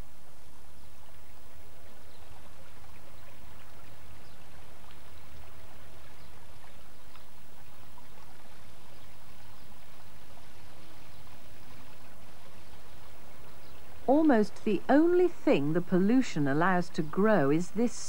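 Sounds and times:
stream running over stones: 0:00.0 - 0:17.9
low steady hum: 0:00.0 - 0:18.0
small splashes and ticks: 0:01.0 - 0:14.5.

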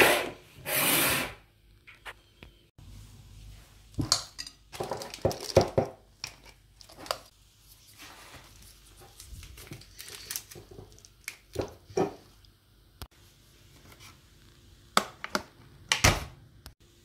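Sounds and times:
plastic piping bag crinkling: 0:08.5 - 0:11.3.

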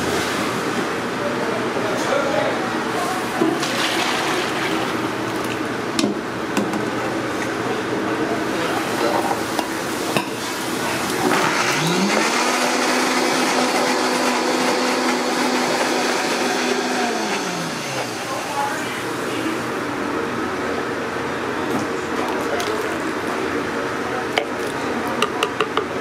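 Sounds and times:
blender motor whining: 0:11.1 - 0:19.0.

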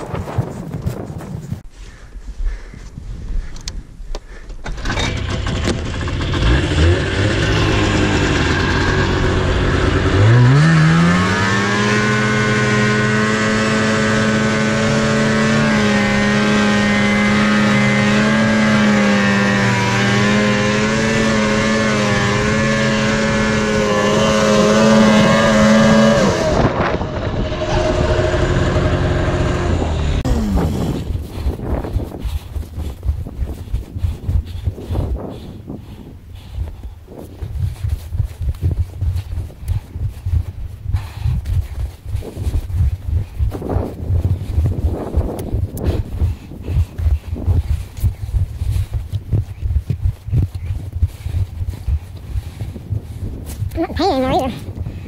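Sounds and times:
snowmobile engine revving: 0:04.7 - 0:31.6.

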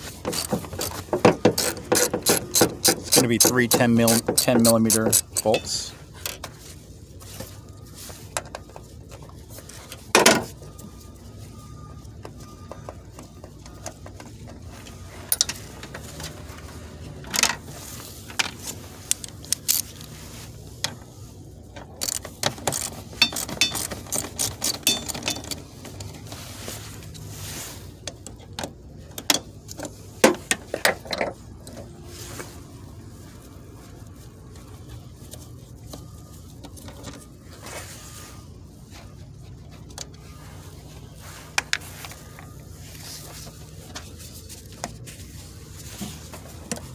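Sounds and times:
metal hand tools clinking: 0:00.3 - 0:05.9, 0:22.0 - 0:26.1.

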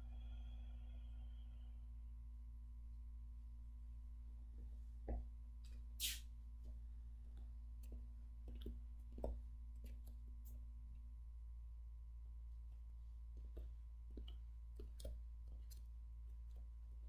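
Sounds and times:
low hum: 0:00.0 - 0:17.0
faint knocks and clicks: 0:06.6 - 0:10.6.

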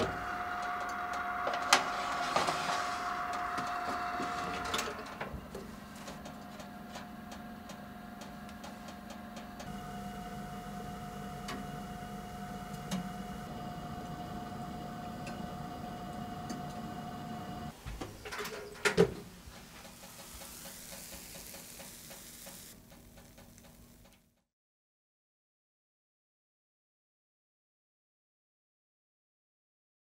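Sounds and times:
oven humming: 0:00.0 - 0:24.2
soft hiss: 0:19.4 - 0:24.1.

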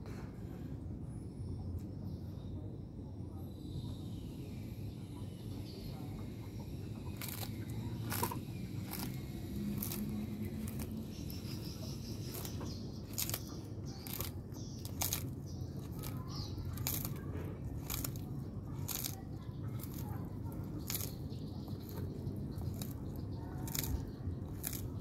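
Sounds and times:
faint bird chirps: 0:00.0 - 0:25.0
tortoise crunching leaves: 0:06.0 - 0:25.0.

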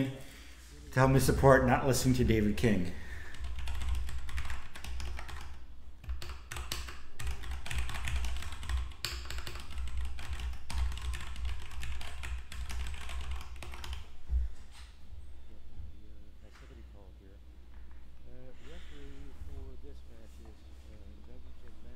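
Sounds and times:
keyboard typing clicks: 0:03.3 - 0:14.1.

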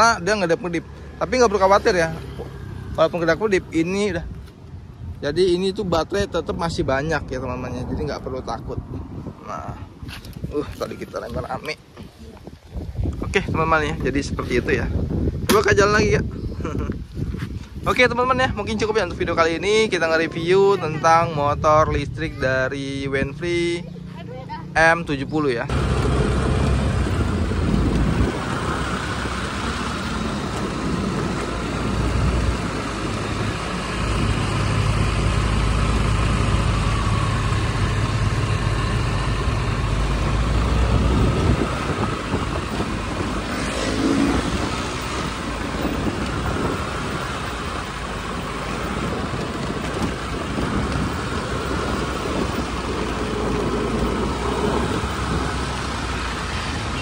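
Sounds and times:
road traffic noise: 0:00.0 - 0:57.0
heavy low rumble: 0:12.8 - 0:23.6, 0:24.7 - 0:57.0.

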